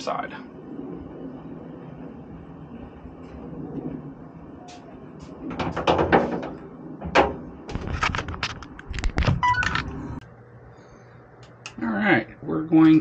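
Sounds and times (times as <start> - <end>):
irregular knocks and clatters: 5.5 - 9.4.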